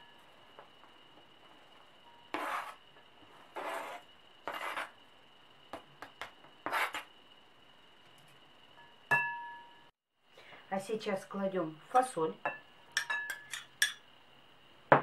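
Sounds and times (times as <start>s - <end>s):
scraping on plastic cutting board: 3.6s - 4.9s.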